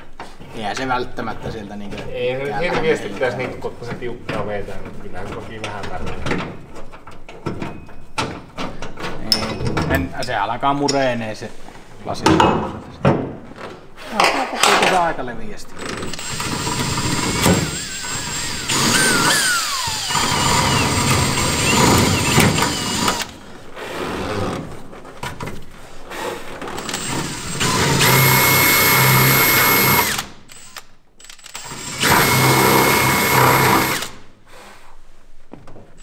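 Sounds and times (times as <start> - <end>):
cordless drill boring: 16.0 - 23.4, 26.8 - 34.2.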